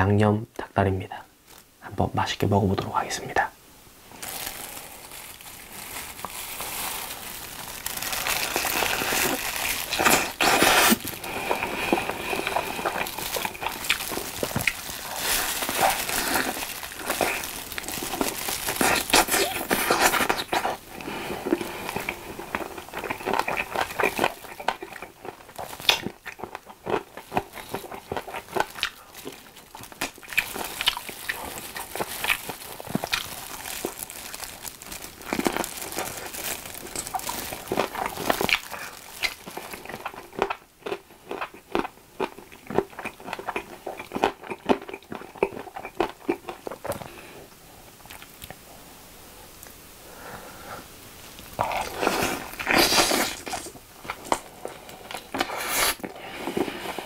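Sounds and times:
plastic glove crinkling: 1.4 - 1.7, 4.1 - 40.5.

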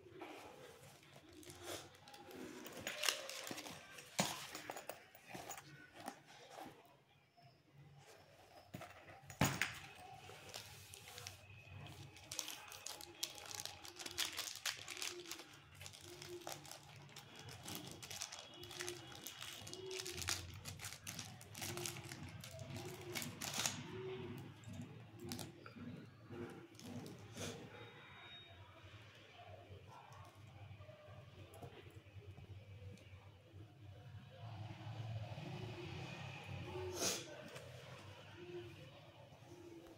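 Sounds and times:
plastic bag crinkling: 1.0 - 4.8, 10.0 - 23.9.

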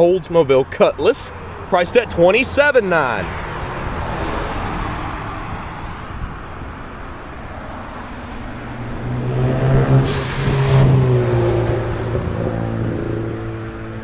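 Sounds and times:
vehicle driving past: 7.4 - 14.0.

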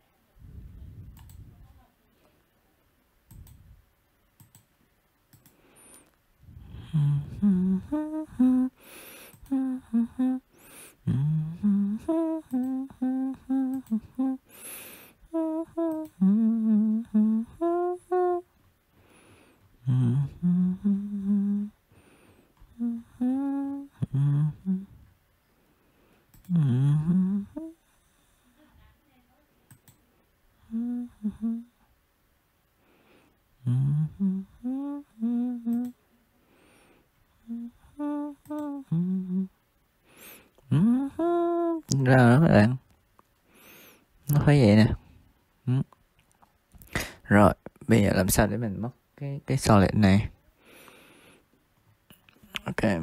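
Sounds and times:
faint clicks: 1.1 - 1.4, 3.2 - 3.6, 4.4 - 6.2, 9.2 - 9.6, 13.6 - 14.1, 26.3 - 26.6, 29.7 - 30.0, 35.6 - 36.0, 38.4 - 38.8
person humming: 6.5 - 18.6, 19.8 - 21.8, 22.6 - 25.2, 26.4 - 28.5, 30.6 - 31.9, 33.6 - 36.0, 37.3 - 39.6, 40.2 - 42.8, 44.3 - 46.0.

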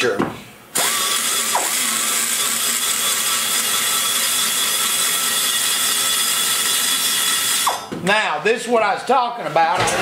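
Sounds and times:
die grinder cutting metal: 0.8 - 7.9.

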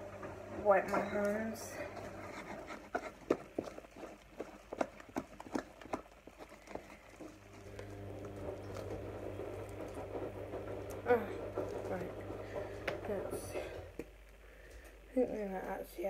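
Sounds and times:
low steady hum: 0.0 - 16.0
hands rubbing slime: 1.8 - 7.5.

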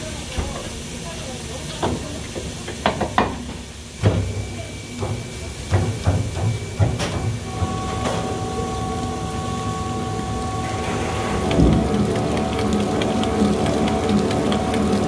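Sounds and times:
mixer motor whine: 7.4 - 15.0.

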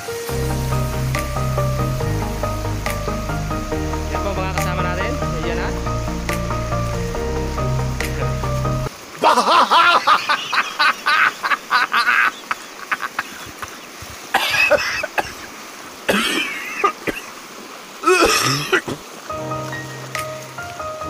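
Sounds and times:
background music with held notes: 0.0 - 8.9, 19.3 - 21.0
people's wordless voices: 3.9 - 6.0
people coughing: 14.4 - 15.4, 16.1 - 17.3, 18.0 - 19.0.

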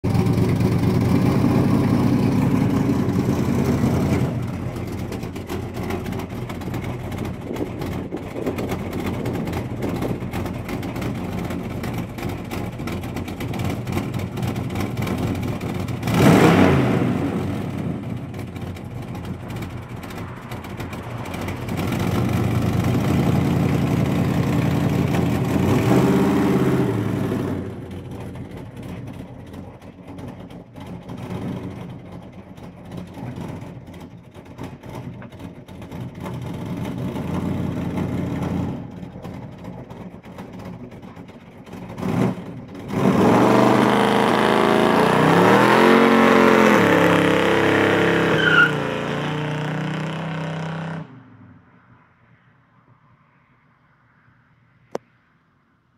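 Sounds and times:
pickup truck engine revving: 0.0 - 29.2, 41.8 - 51.1.

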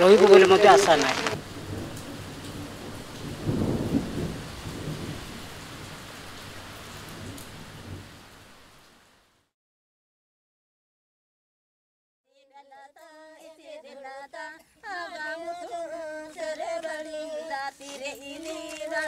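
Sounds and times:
steady rain: 0.0 - 9.5, 14.8 - 19.0
low rumble of thunder: 1.1 - 8.5.

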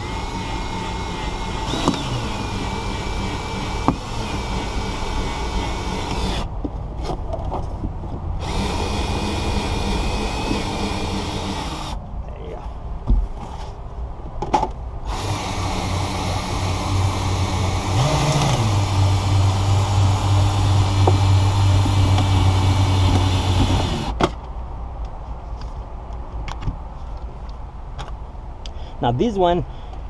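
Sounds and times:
cordless drill running under load: 0.0 - 6.5, 8.4 - 12.0, 15.1 - 24.2.

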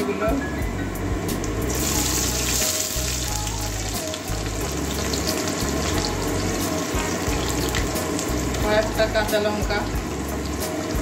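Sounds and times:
onions sizzling in hot oil: 1.4 - 11.0.

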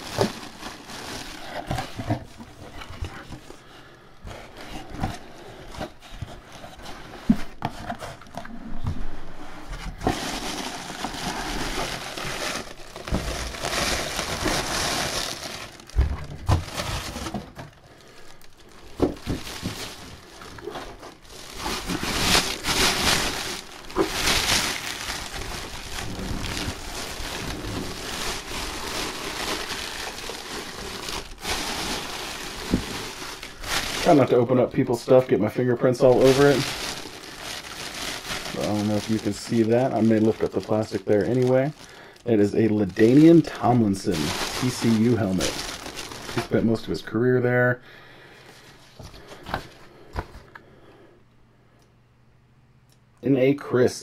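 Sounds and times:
plastic bag crinkling: 0.0 - 3.7, 9.8 - 47.5.

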